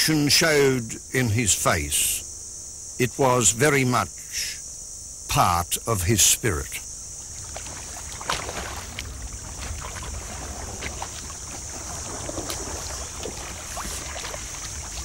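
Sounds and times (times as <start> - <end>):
high insect drone: 0.0 - 15.0
paddles splashing in water: 7.3 - 15.0.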